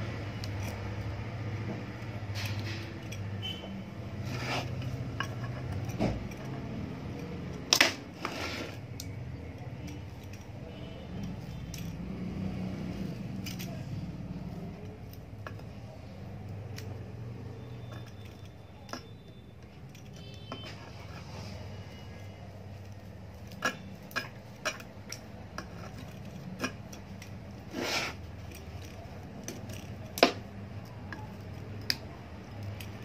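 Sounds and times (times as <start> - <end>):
small metal clicks and clinks: 0.4 - 1.2, 2.0 - 3.7, 4.8 - 7.6, 8.8 - 12.2, 13.0 - 20.6, 22.7 - 27.6, 28.4 - 33.0.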